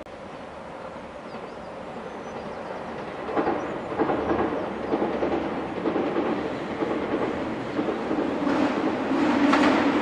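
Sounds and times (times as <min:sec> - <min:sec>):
diesel train approaching: 0:00.1 - 0:10.0
train wheels clacking over rail joints: 0:02.2 - 0:10.0.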